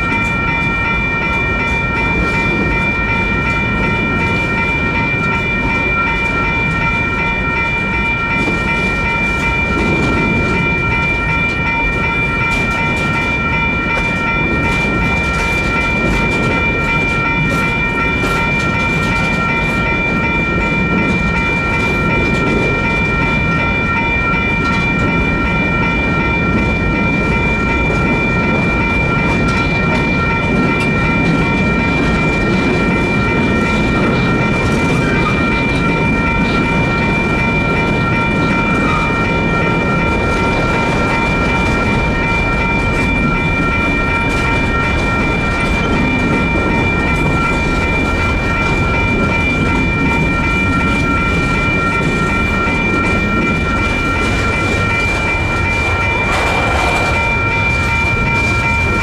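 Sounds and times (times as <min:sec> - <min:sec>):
crossing bells ringing: 0:00.0 - 0:59.0
freight train rumbling: 0:00.0 - 0:59.0
wheels clacking: 0:00.1 - 0:59.0.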